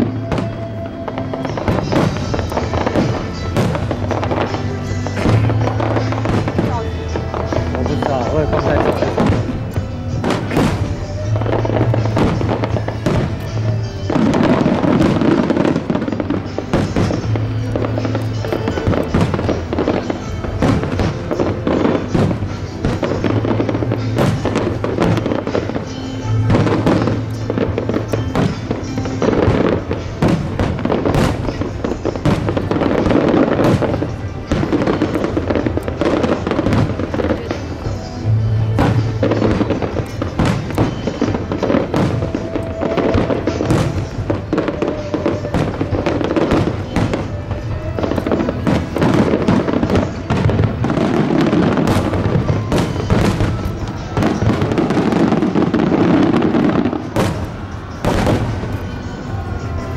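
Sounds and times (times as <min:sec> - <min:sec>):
fireworks bursting and crackling: 0:00.0 - 0:59.9
music with held notes: 0:00.0 - 0:59.9.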